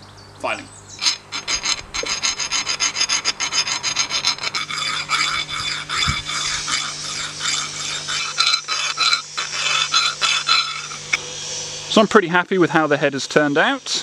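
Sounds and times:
file rasping on steel: 0:01.0 - 0:11.2.

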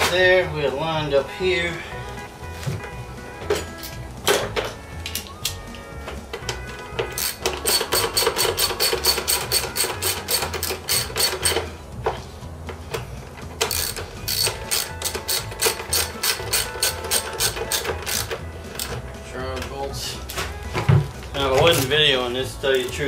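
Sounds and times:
socket ratchet clicking: 0:06.4 - 0:11.7, 0:12.9 - 0:19.0.

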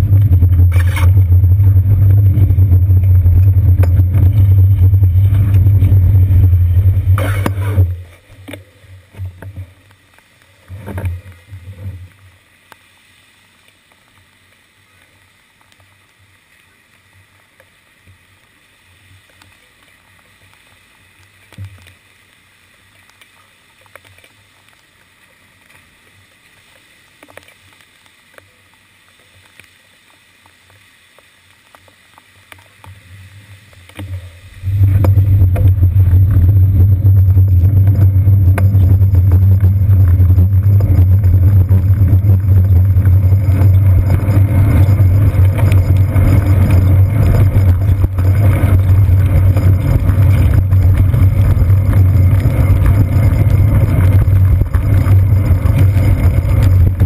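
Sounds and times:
bicycle road rumble and wind: 0:00.0 - 0:57.0.

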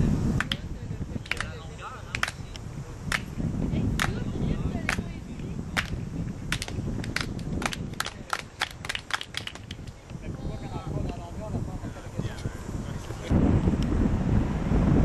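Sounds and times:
sharp hand claps: 0:00.4 - 0:03.3, 0:04.0 - 0:04.2, 0:04.9 - 0:05.1, 0:05.8 - 0:10.0.

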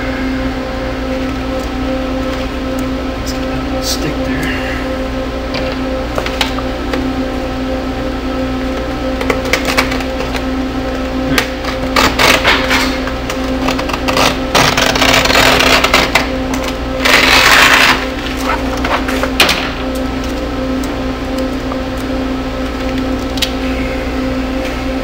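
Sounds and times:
steady hum: 0:00.0 - 0:25.0
plastic film crackling: 0:11.5 - 0:20.5.

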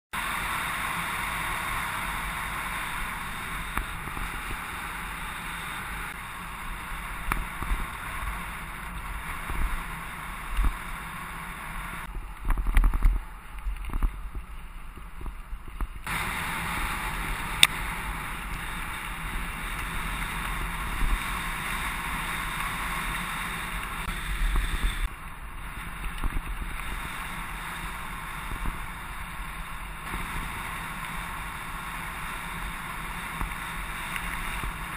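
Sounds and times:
bicycle tyres on gravel: 0:00.1 - 0:34.9
bike rattling over bumps: 0:00.2 - 0:34.9
wind on microphone: 0:11.9 - 0:34.9.

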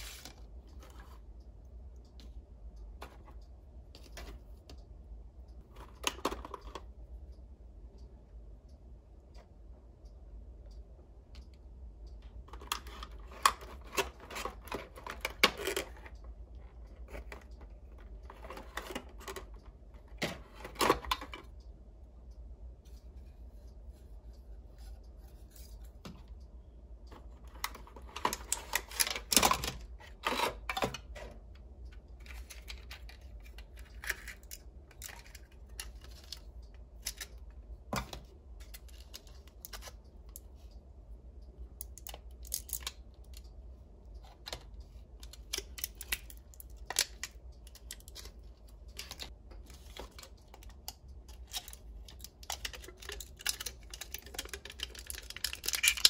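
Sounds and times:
steady low hum: 0:00.0 - 0:56.0
plastic toy pieces clicking: 0:50.1 - 0:56.0.

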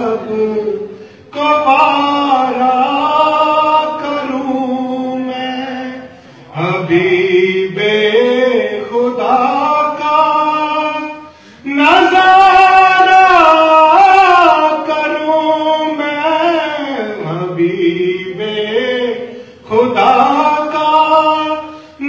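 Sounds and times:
man singing devotional song: 0:00.0 - 0:22.0.

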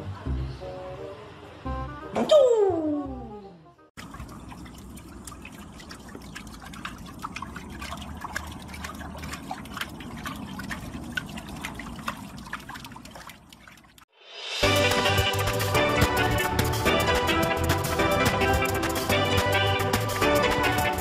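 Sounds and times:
small quick splashes: 0:04.0 - 0:15.7
pool water sloshing and dripping: 0:04.0 - 0:21.0.

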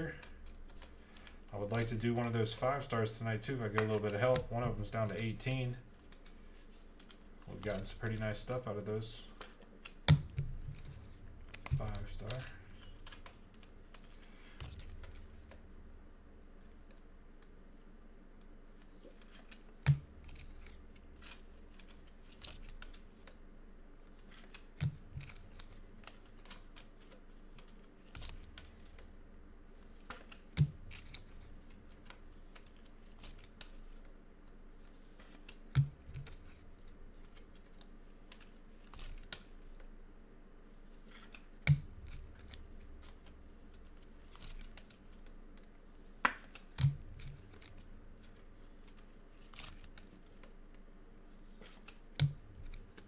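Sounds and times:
plastic sleeves rustling: 0:00.0 - 0:15.7, 0:24.0 - 0:39.9, 0:40.6 - 0:53.0.

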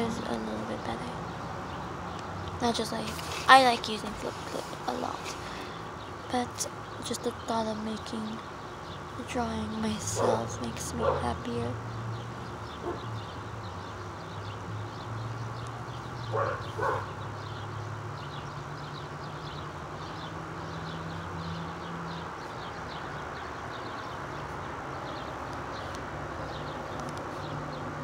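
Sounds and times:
dog barking: 0:10.2 - 0:11.3, 0:16.3 - 0:17.1.

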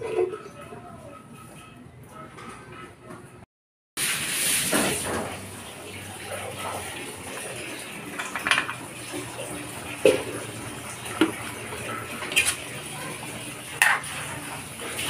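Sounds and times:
pan lid and ladle clanking: 0:13.8 - 0:14.1.

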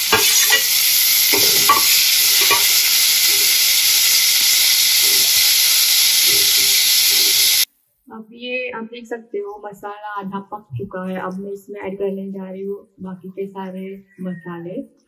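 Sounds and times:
spoon scraping pan: 0:00.0 - 0:07.7
vegetables sizzling in oil: 0:00.0 - 0:07.7.

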